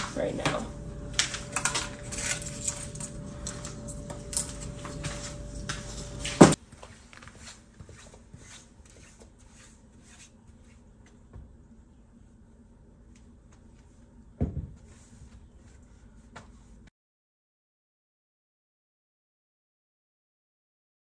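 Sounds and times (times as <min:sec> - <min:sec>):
steady hum: 0:00.0 - 0:16.9
footsteps crunching on snow: 0:04.6 - 0:09.2.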